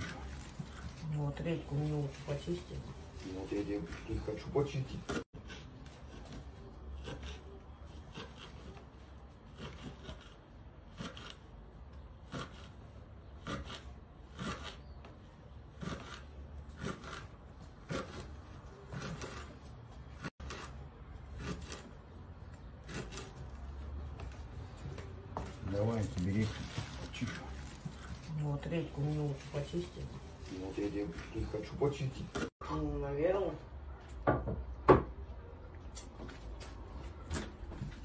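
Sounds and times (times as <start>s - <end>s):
knife chopping on wooden board: 15.8s - 19.6s, 20.2s - 21.9s.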